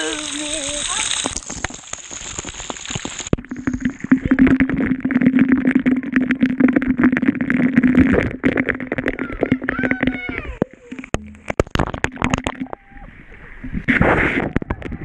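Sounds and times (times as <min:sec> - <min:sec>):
underwater low hum: 0:00.0 - 0:15.0
water splashing and dripping: 0:00.0 - 0:15.0
sharp underwater clicks: 0:05.6 - 0:12.9.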